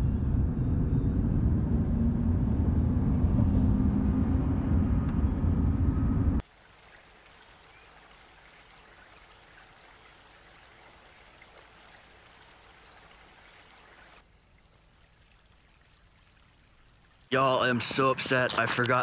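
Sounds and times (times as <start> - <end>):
river water flowing: 6.4 - 19.0.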